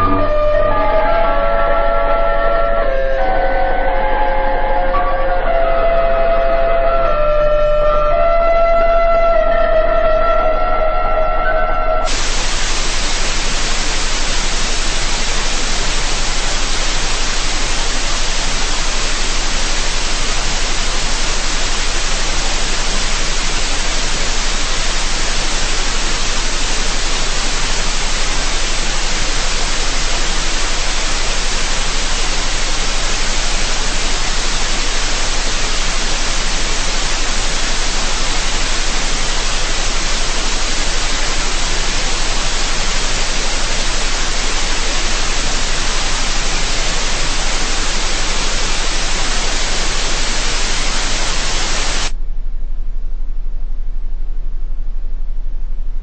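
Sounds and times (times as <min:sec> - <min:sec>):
pitched tone: 0:00.0 - 0:02.3
low hum: 0:00.0 - 0:03.3, 0:12.0 - 0:56.0
loud static hiss: 0:12.0 - 0:52.2.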